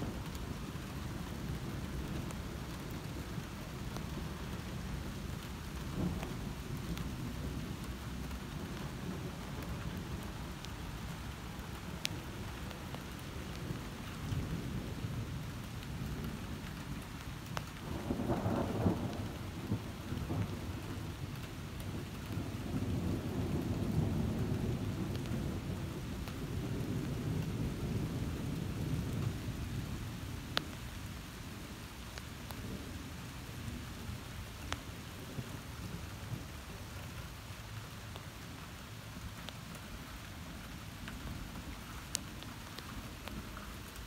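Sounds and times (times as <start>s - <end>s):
steady rain: 0.0s - 44.0s
ticks of raindrops: 0.0s - 44.0s
thunder rumbling: 17.8s - 30.5s.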